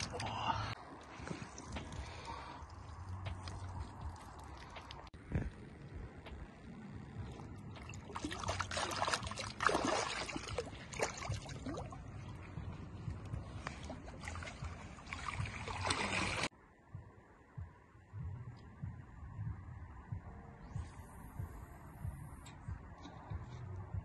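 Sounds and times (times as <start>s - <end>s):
water splashing and sloshing: 0.0s - 16.5s.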